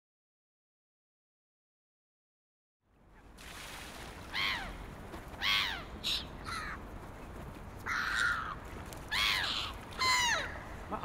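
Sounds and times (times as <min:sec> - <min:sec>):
birds calling: 0:04.3 - 0:06.8, 0:07.8 - 0:11.0.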